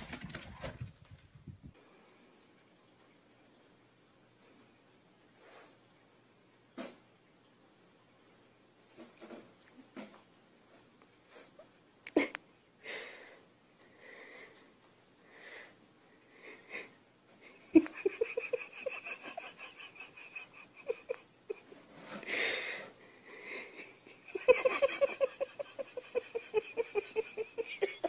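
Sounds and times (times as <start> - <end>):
person laughing wheezily: 17.7 - 21.7, 23.7 - 28.0
breathy snickers: 17.8 - 21.7.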